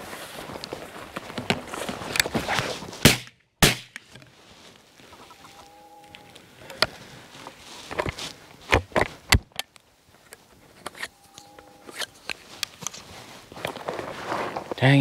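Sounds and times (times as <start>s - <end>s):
footsteps through dry grass: 0.0s - 3.3s, 4.0s - 15.0s.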